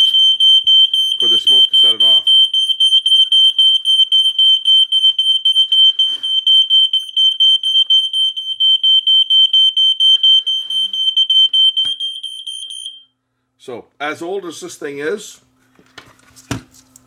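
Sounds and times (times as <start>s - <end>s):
smoke alarm beeping rapidly: 0.0s - 13.1s.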